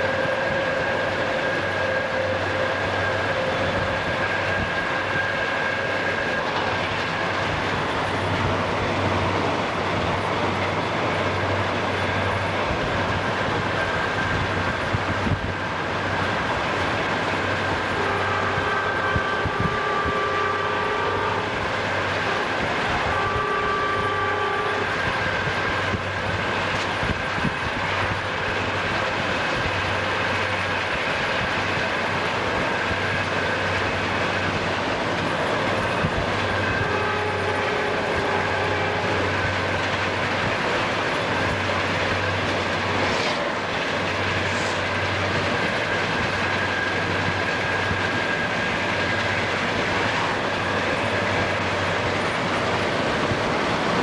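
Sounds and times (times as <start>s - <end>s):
locomotive air horn: 0.0s - 6.4s, 17.4s - 26.3s, 35.3s - 40.2s, 44.2s - 45.0s
moving train rumble: 0.0s - 54.0s.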